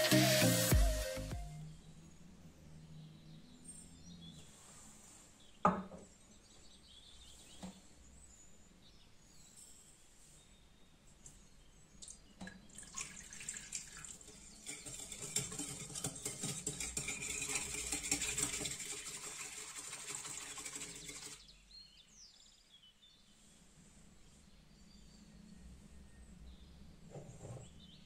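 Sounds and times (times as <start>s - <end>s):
water pouring into a bowl: 12.0s - 21.4s
whisk clinking against a bowl: 13.9s - 21.4s.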